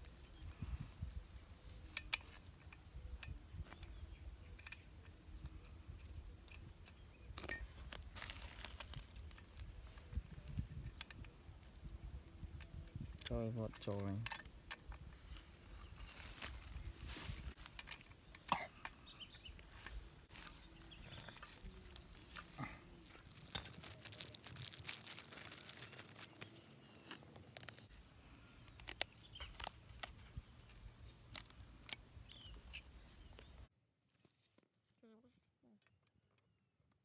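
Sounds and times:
plastic bag crinkling: 7.8s - 9.7s, 20.4s - 27.9s
plastic and metal parts clicking: 17.5s - 19.0s, 28.6s - 32.0s.

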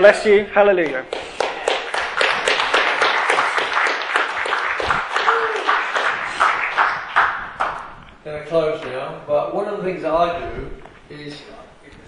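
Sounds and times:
audience applauding: 1.0s - 8.0s.

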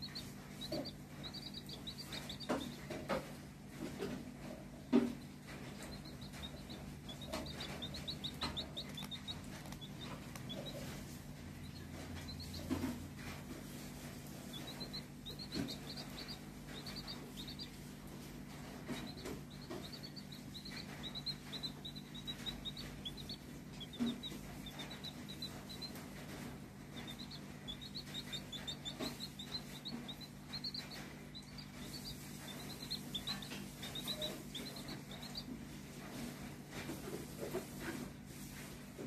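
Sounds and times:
low steady hum: 0.0s - 38.8s
chick peeping: 0.0s - 39.0s.

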